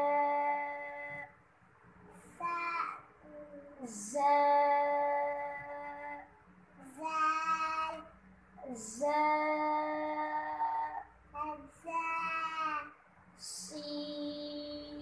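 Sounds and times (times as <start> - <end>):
children chanting sing-song: 8.7 - 15.0.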